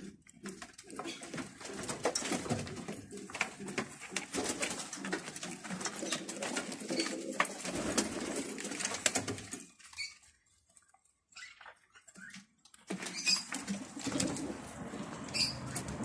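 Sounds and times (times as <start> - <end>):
pigeons cooing: 0.0 - 9.0, 13.1 - 16.0.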